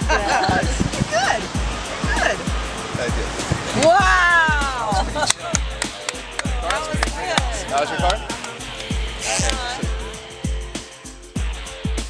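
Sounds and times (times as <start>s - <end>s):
deep booming kick drum: 0.0s - 5.8s.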